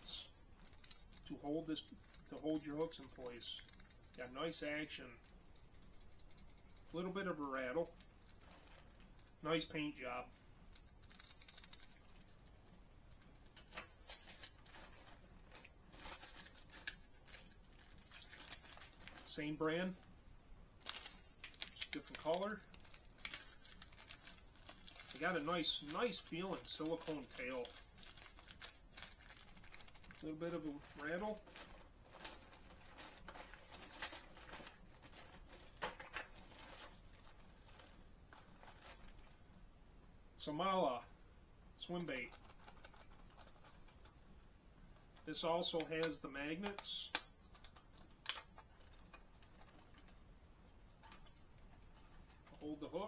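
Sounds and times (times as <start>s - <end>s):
plastic packaging rustling: 0.5s - 5.4s, 7.8s - 9.4s, 13.1s - 20.1s, 20.8s - 39.6s, 47.4s - 50.2s, 50.9s - 53.0s.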